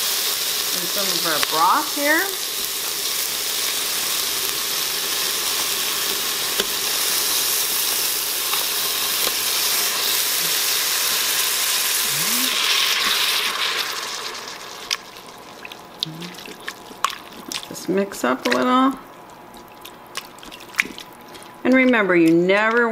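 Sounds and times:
broth sizzling and hissing: 0:00.0 - 0:17.8.

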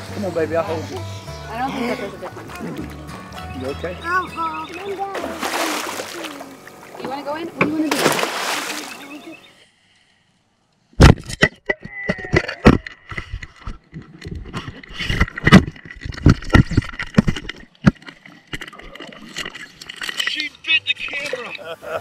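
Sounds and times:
rush of water: 0:04.9 - 0:07.1, 0:07.9 - 0:09.2
muffled underwater knocks: 0:07.0 - 0:08.1.

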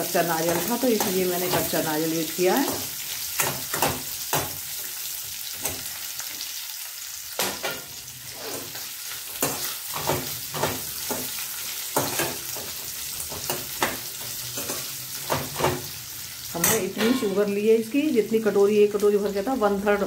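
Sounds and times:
nuts sizzling in hot fat: 0:00.0 - 0:20.0.

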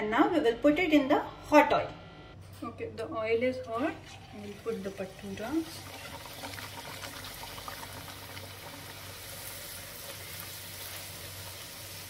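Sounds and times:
dough deep-frying in hot oil: 0:03.8 - 0:12.0.

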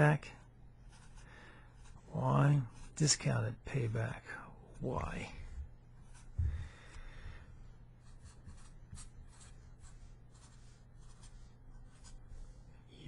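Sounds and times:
marker writing on paper: 0:08.0 - 0:12.7.

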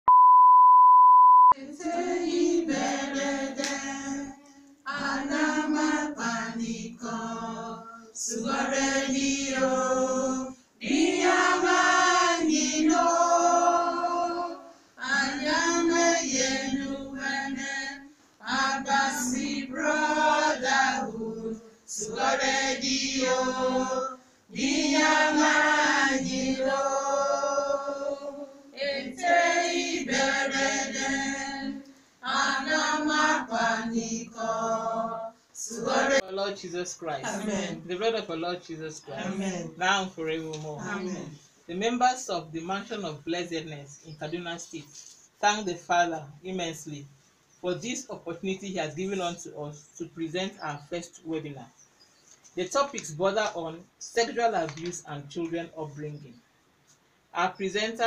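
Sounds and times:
choir singing a chant: 0:01.6 - 0:36.2, 0:40.8 - 0:41.4.

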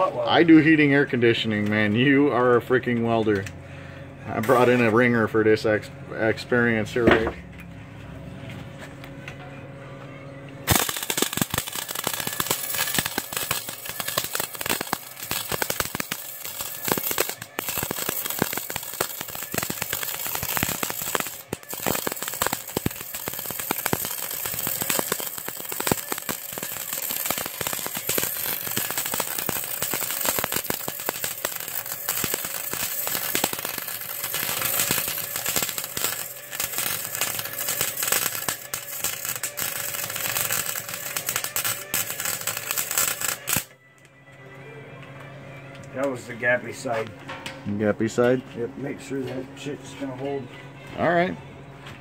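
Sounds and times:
welder arc crackling: 0:10.7 - 0:43.7.

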